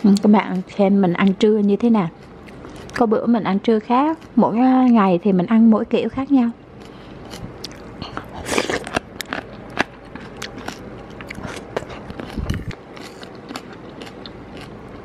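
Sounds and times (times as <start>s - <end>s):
chewing and crunching: 2.1s - 3.1s, 6.7s - 15.0s.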